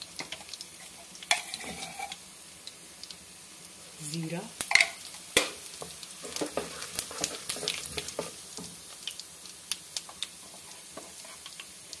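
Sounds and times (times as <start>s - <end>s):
crackles and pops of frying: 0.0s - 12.0s
hot oil sizzling: 0.0s - 12.0s
wooden spoon stirring and scraping: 0.2s - 2.2s, 5.8s - 8.8s, 10.1s - 12.0s.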